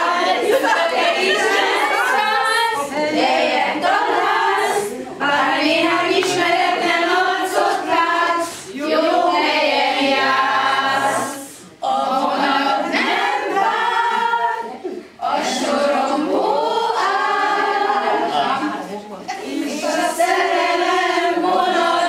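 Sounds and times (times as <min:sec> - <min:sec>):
women singing unaccompanied: 0:00.0 - 0:18.6, 0:19.3 - 0:22.0.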